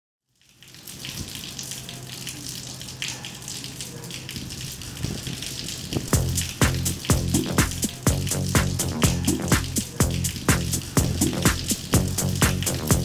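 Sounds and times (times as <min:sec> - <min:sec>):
rushing water-like noise: 0:00.6 - 0:13.0
music beat with low drums: 0:06.2 - 0:13.0.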